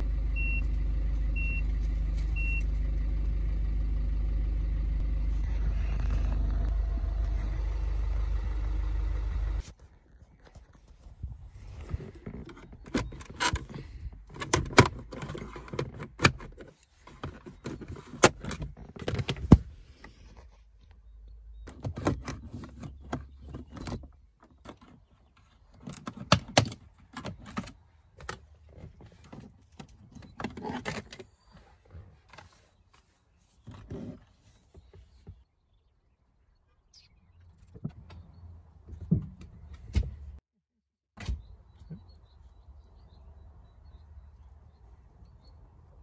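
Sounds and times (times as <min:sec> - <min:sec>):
low hum: 0:00.0 - 0:09.7.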